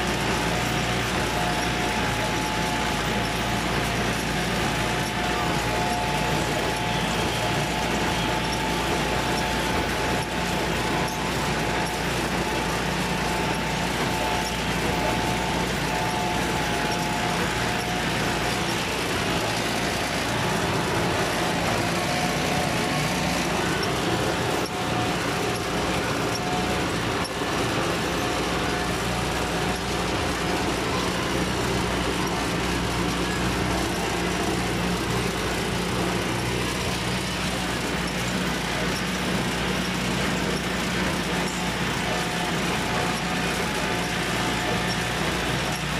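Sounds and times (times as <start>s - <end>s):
tractor diesel engine running: 0.0s - 45.9s.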